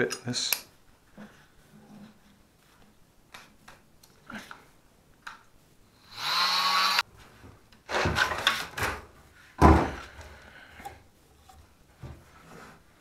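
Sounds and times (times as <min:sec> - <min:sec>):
plastic pipe rustling and scraping: 0:01.0 - 0:03.8, 0:10.8 - 0:13.0
oscillating multi-tool whine: 0:06.0 - 0:07.0.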